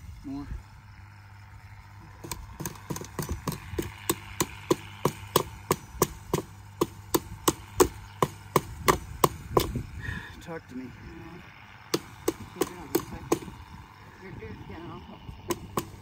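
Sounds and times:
hammer knocking on wooden post: 2.2s - 9.8s, 11.9s - 13.6s, 15.5s - 16.0s.

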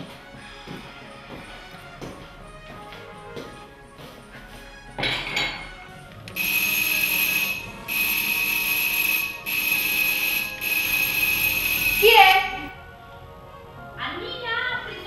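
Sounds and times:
electronic ringer buzzing ring: 6.4s - 12.7s.

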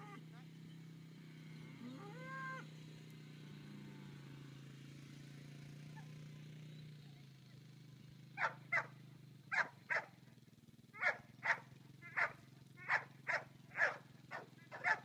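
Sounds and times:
rising animal call: 1.8s - 2.7s
dog barks: 8.4s - 8.9s, 9.5s - 10.2s, 11.0s - 15.0s.

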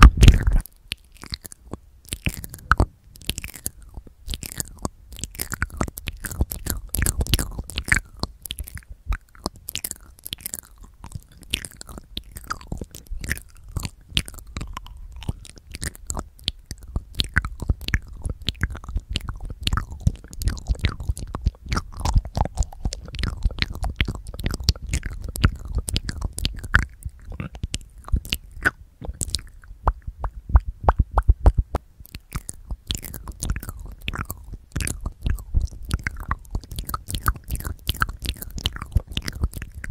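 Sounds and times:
lips thumping on microphone: 0.0s - 0.6s, 17.3s - 39.9s
wet mouth clicks and smacks: 0.0s - 39.9s.

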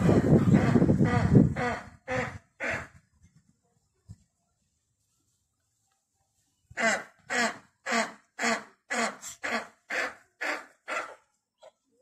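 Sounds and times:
eagle barking calls: 6.8s - 11.3s.

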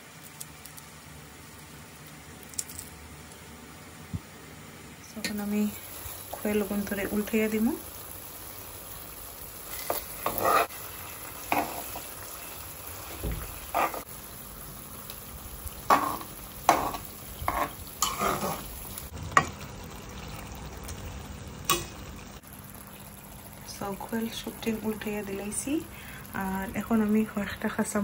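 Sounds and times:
food sizzling in a pan: 5.1s - 28.0s
metal spatula scraping a pan: 9.7s - 10.8s, 13.7s - 14.1s, 15.9s - 18.7s.

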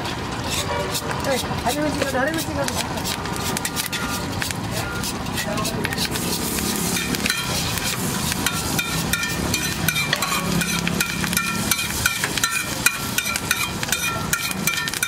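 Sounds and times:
metal spatula scraping and tapping: 0.0s - 15.0s
omelette frying: 0.0s - 15.0s.

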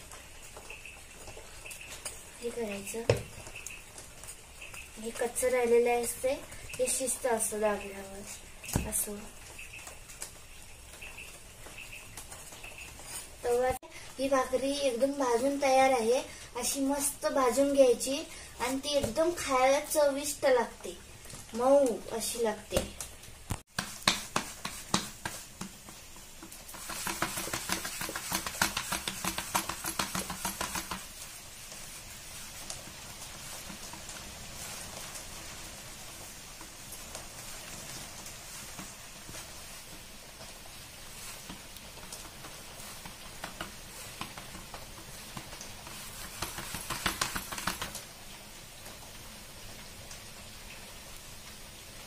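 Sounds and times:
hands patting dough: 22.7s - 35.1s, 41.1s - 48.0s.

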